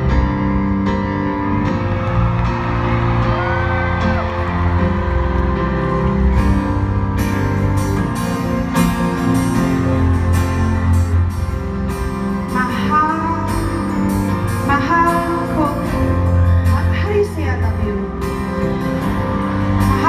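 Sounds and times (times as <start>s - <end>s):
live band music: 0.0s - 20.0s
strummed guitar: 4.3s - 20.0s.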